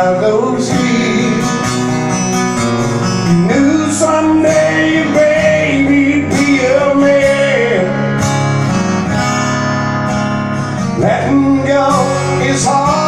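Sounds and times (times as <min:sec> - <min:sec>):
man singing: 0:00.0 - 0:02.0, 0:03.2 - 0:08.2, 0:11.0 - 0:13.0
acoustic guitar strumming: 0:00.0 - 0:13.0.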